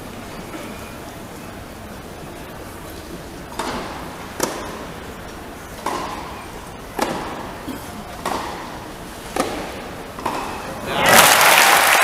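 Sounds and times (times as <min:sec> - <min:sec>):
tennis ball hit by racket: 0:03.5 - 0:04.9, 0:05.8 - 0:06.3, 0:07.0 - 0:07.5, 0:08.2 - 0:10.6.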